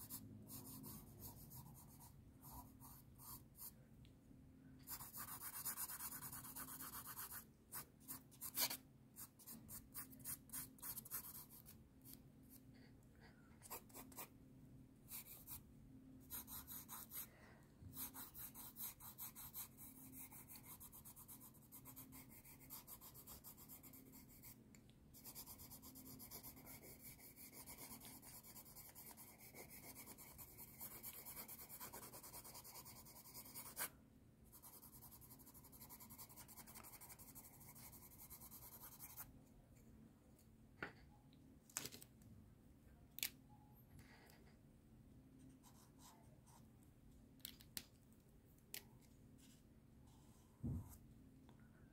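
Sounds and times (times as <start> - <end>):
pencil scratching on paper: 0.0 - 3.7, 4.9 - 12.2, 15.1 - 15.6, 16.3 - 17.3, 17.9 - 24.6, 25.2 - 33.9, 34.5 - 39.3, 45.5 - 46.6.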